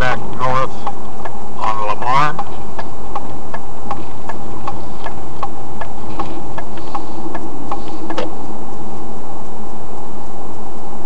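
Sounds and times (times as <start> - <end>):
road and engine rumble: 0.0 - 9.1
turn signal clicking: 0.8 - 1.4, 2.3 - 8.4.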